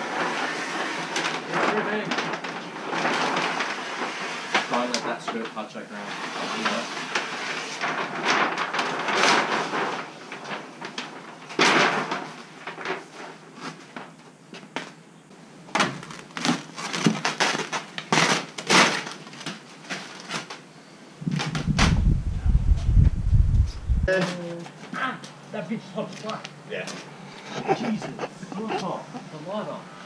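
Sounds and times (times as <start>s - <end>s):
clicks and crackles: 1.0s - 5.6s, 6.6s - 15.0s, 15.7s - 25.4s
plastic film crinkling: 6.4s - 15.0s, 15.8s - 23.9s.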